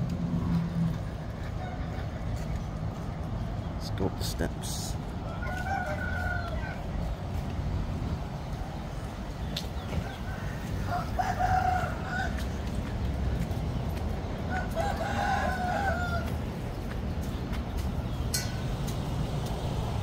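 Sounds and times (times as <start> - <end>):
roosters crowing: 1.2 - 2.7, 4.8 - 17.0.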